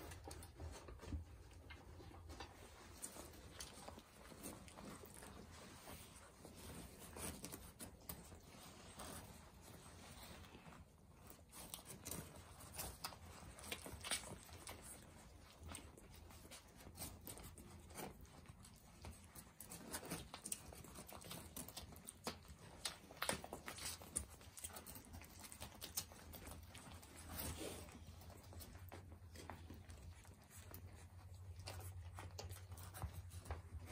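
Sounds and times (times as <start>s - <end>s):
puppies suckling wet smacks: 10.8s - 33.9s.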